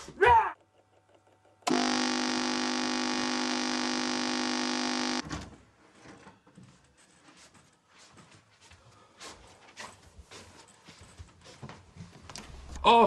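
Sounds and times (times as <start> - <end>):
electric buzzer: 1.6 - 5.2.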